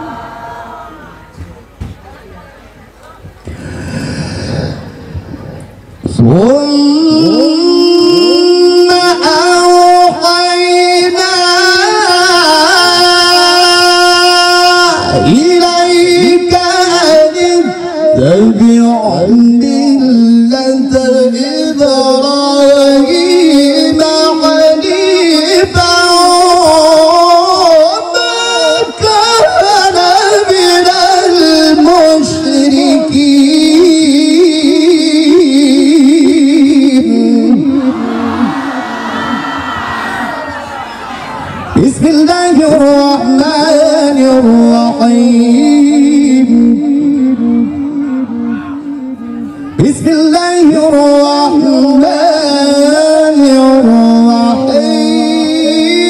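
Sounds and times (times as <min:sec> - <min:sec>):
man chanting into a microphone: 0:03.4 - 0:38.6, 0:41.7 - 0:56.0.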